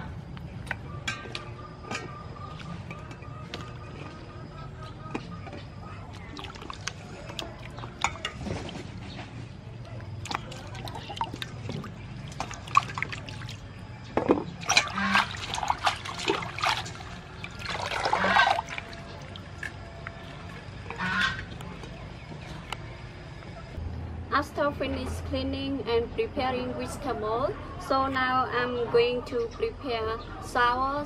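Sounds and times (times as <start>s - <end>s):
water splashing in a metal bowl: 6.0s - 8.9s, 10.0s - 13.8s, 14.5s - 21.6s.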